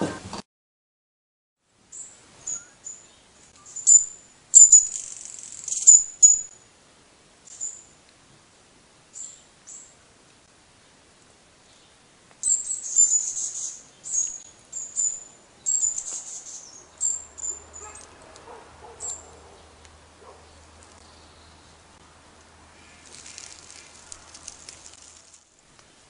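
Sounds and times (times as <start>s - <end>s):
small birds chirping: 1.9s - 6.6s, 7.4s - 8.0s, 9.1s - 10.0s, 11.6s - 22.0s, 22.7s - 25.6s.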